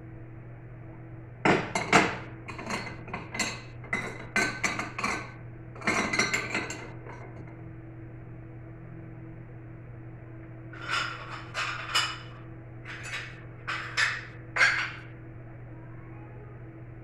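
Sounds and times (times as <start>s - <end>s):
steady low hum: 0.0s - 17.0s
plates clinking and scraping: 1.5s - 7.4s, 10.8s - 15.1s.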